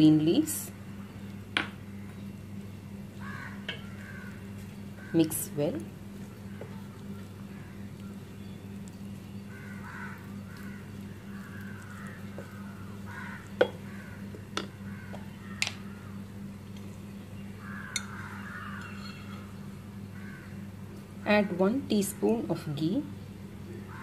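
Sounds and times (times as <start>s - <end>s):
low hum: 0.0s - 24.0s
wooden spatula mixing rice: 10.1s - 13.7s.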